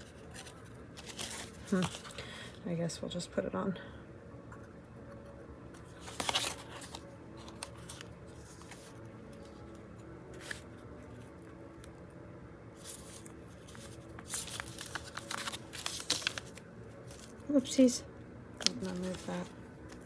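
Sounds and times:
paper journal rustling: 0.0 - 2.2, 5.8 - 11.9, 12.8 - 17.6, 18.6 - 20.0
faint steady hum: 0.0 - 20.0.

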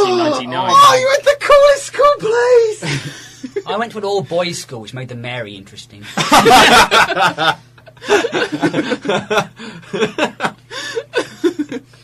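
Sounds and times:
people laughing: 2.8 - 3.7, 6.0 - 11.9.

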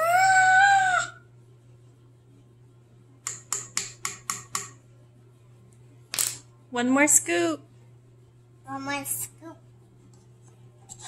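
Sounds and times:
metal spoon tapping: 3.3 - 4.8.

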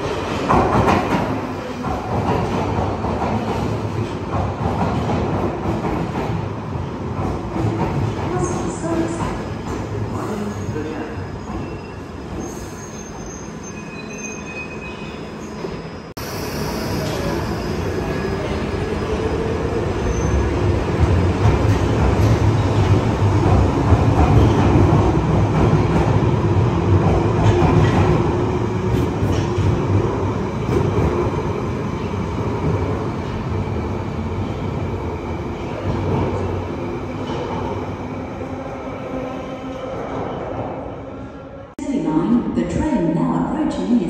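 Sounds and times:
train rumbling: 0.0 - 12.7, 16.8 - 42.9
rail clicks: 20.9 - 30.1.

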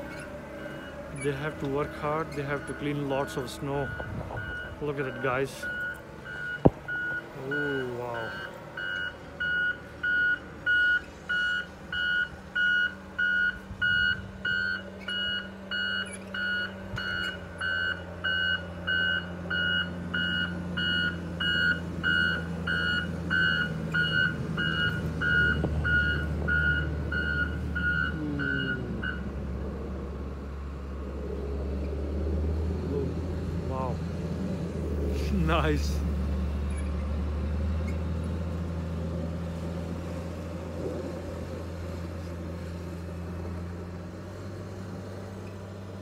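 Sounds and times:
diesel engine running: 0.0 - 46.0
reversing alarm beeping: 0.1 - 29.4.

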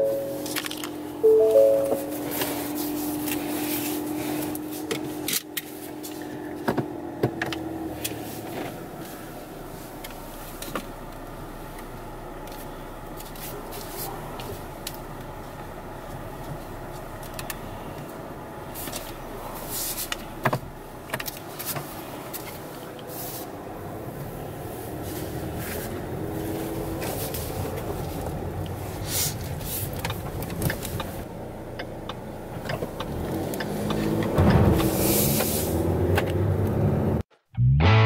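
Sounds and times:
car engine and tyres running: 0.0 - 38.0.

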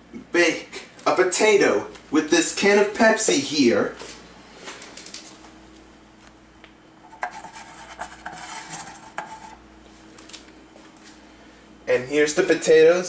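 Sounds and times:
can scraping on countertop: 7.1 - 9.6.

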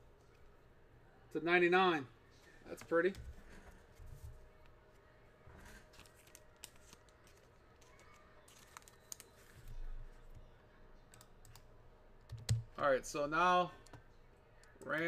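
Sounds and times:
keyboard and mouse clicks: 12.3 - 12.7.

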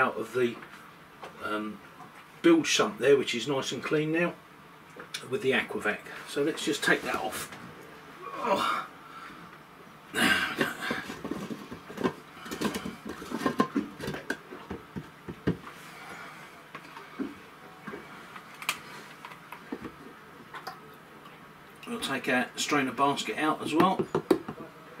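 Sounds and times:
handling clicks and knocks: 10.6 - 15.6, 23.7 - 24.6.

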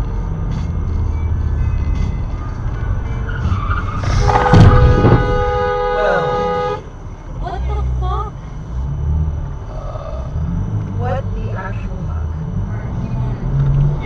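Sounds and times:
car road noise: 0.0 - 14.0
car horn held: 4.0 - 6.9.

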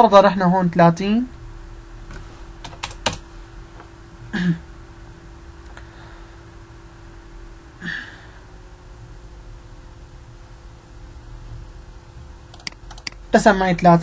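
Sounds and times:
faint electrical hum: 0.0 - 14.0
person murmuring: 4.3 - 4.6
keyboard key clicks: 12.6 - 13.2.

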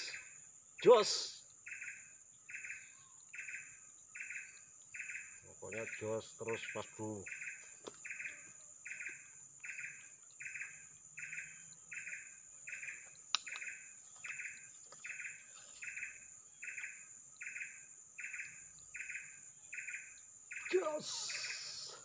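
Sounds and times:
high insect drone: 0.0 - 22.0
sharp click: 13.3 - 13.7.

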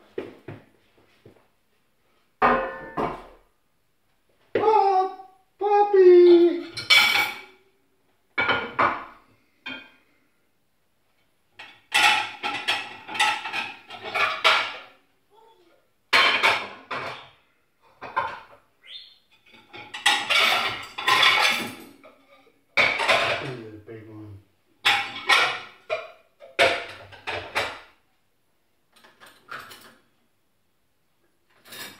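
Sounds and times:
plates and cutlery clattering: 2.4 - 3.4, 6.6 - 7.6, 8.4 - 10.0, 11.6 - 15.0, 16.1 - 18.7, 19.3 - 23.6, 24.8 - 28.0, 29.0 - 30.1, 31.5 - 31.9.

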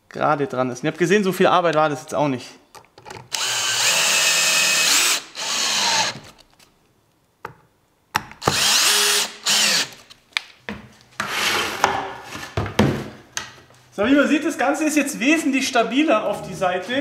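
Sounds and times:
cordless drill driving screws: 3.3 - 6.4, 8.4 - 10.1.

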